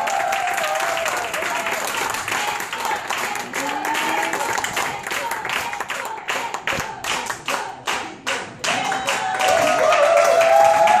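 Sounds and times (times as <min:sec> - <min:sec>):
audience applauding: 0:00.0 - 0:07.4, 0:08.2 - 0:11.0
voices: 0:01.2 - 0:09.1.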